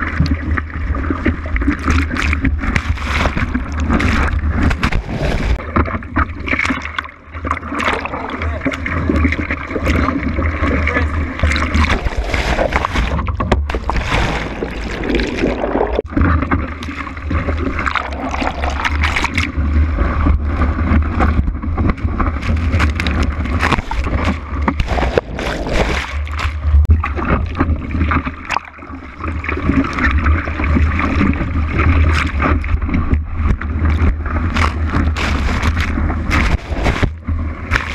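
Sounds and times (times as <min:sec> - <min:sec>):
deep rumble: 0:00.0 - 0:37.9
seawater sloshing and splashing: 0:00.0 - 0:37.9.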